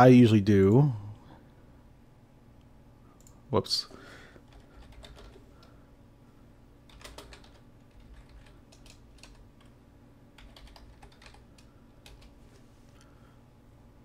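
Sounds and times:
computer keyboard typing: 0:04.4 - 0:05.7, 0:06.9 - 0:09.8, 0:10.4 - 0:12.4.

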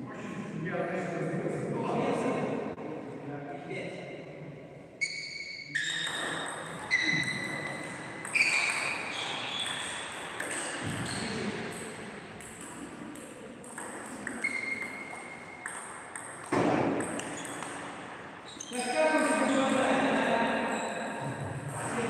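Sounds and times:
table tennis ball hits: 0:06.0 - 0:18.1.

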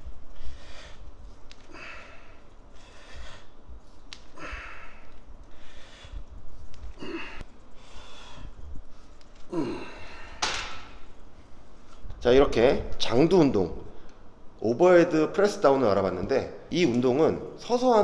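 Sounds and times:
man breathing hard: 0:00.1 - 0:10.5
man groaning: 0:09.5 - 0:10.3.

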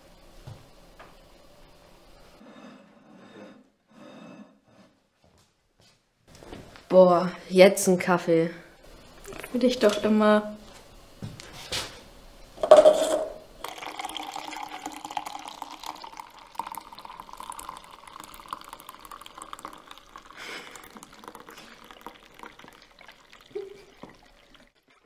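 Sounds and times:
coffee pouring into cup: 0:09.0 - 0:10.2, 0:12.6 - 0:25.0
jug knocking: 0:12.6 - 0:13.9.

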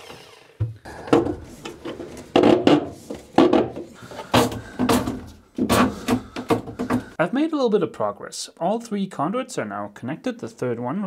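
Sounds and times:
knocks against wood: 0:02.3 - 0:07.2.

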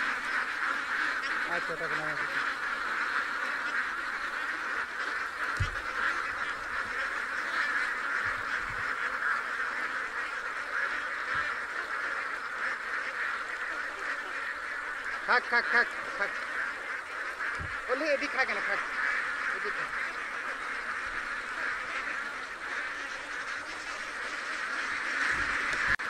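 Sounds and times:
ducks quacking: 0:00.0 - 0:26.0.

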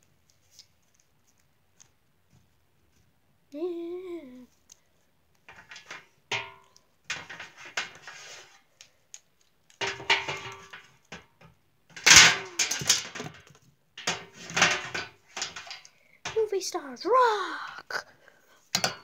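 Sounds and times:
plastic toys clattering on table: 0:05.5 - 0:08.4, 0:09.7 - 0:16.5.

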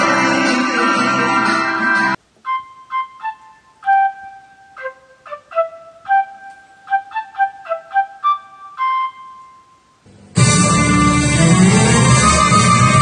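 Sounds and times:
flute-like solo melody: 0:02.3 - 0:13.0.

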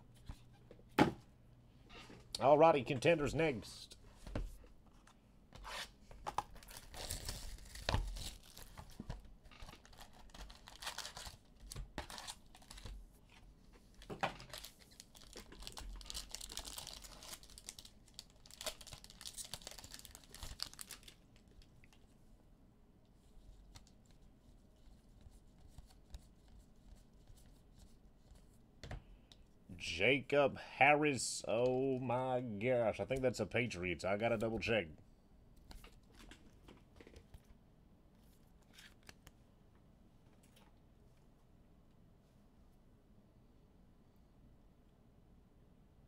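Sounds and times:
foil wrappers tearing and crinkling: 0:06.6 - 0:09.0, 0:09.6 - 0:12.9, 0:14.4 - 0:21.6.

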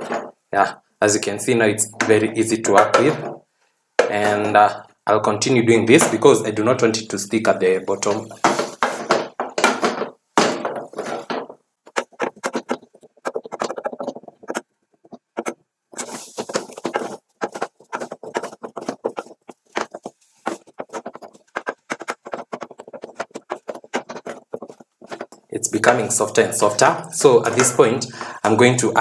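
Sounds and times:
wooden spoon knocking saucepan: 0:04.0 - 0:04.7, 0:08.0 - 0:25.5.

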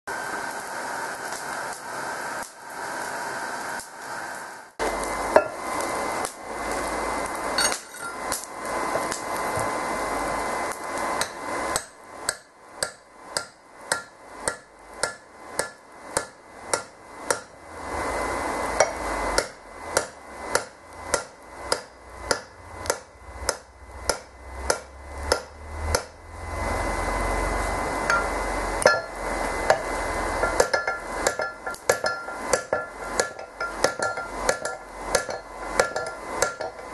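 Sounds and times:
hammer striking hot steel on anvil: 0:05.3 - 0:05.6, 0:07.6 - 0:09.2, 0:10.7 - 0:17.6, 0:18.7 - 0:26.2, 0:28.0 - 0:36.9
faint metallic ringing: 0:30.4 - 0:36.9.

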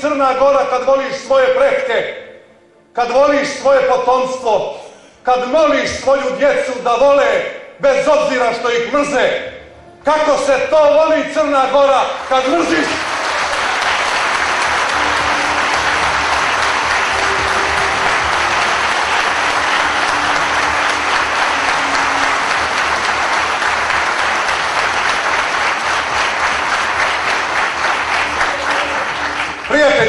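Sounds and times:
crowd applauding: 0:11.8 - 0:30.0.

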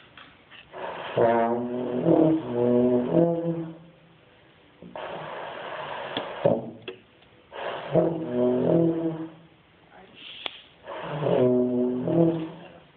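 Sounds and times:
wavering euphonium note: 0:07.9 - 0:09.4, 0:11.2 - 0:12.8.

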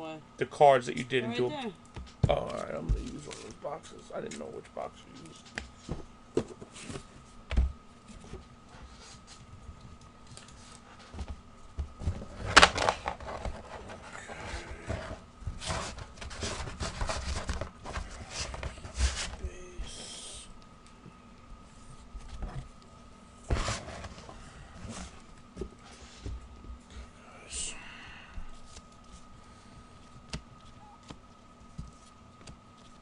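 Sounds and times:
faint steady hum: 0:00.0 - 0:33.0
cards being packed into box: 0:10.3 - 0:19.4.

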